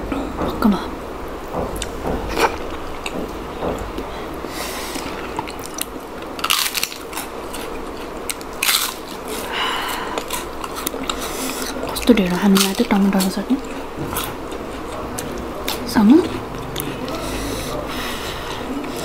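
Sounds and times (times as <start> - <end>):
chewing: 5.0 - 19.0
crunchy bites: 5.4 - 12.8.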